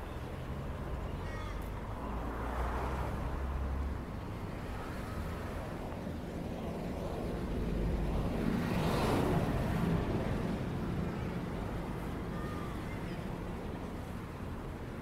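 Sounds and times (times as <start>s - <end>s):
outdoor street ambience: 0.0s - 15.0s
vehicle passing: 2.0s - 5.5s.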